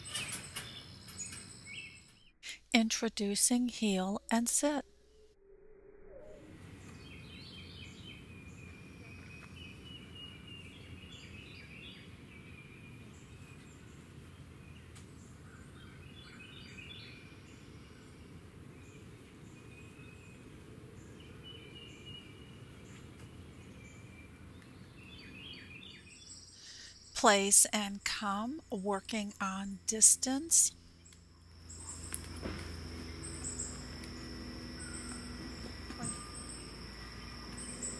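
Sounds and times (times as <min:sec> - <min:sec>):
birds chirping and trilling: 0:00.0 - 0:02.3, 0:06.1 - 0:30.1, 0:30.7 - 0:37.9
low outdoor rumble: 0:26.3 - 0:37.9.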